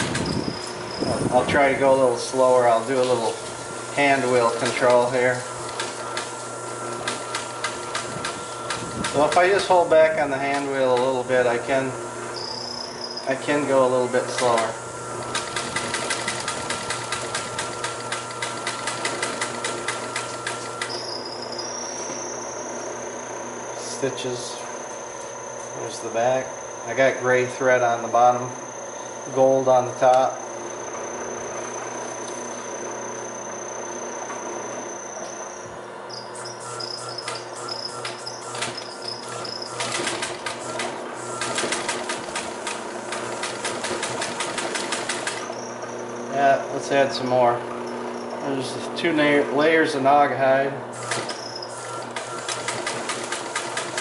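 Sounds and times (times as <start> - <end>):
high-pitched whine: 0.0 - 5.6, 9.2 - 15.4, 20.4 - 41.5
sewing machine stitching: 14.3 - 21.1, 37.2 - 45.7, 51.0 - 54.0.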